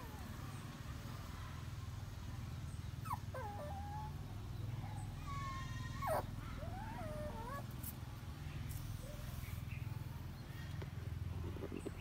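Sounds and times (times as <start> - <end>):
puppies whimpering: 3.0 - 4.2, 4.9 - 7.8.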